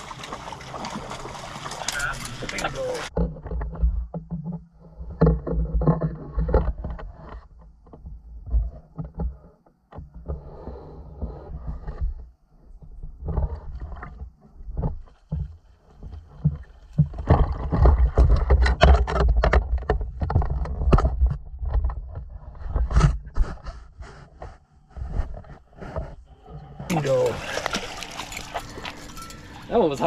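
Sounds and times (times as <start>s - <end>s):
net splashing into water: 0.0s - 2.2s, 26.9s - 29.6s
net knocking and scraping: 13.3s - 30.0s
low rumble of handling noise: 24.8s - 30.0s.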